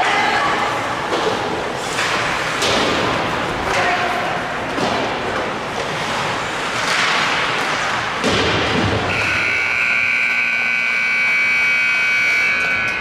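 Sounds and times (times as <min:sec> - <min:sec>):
scoreboard horn blast: 0:09.1 - 0:13.0.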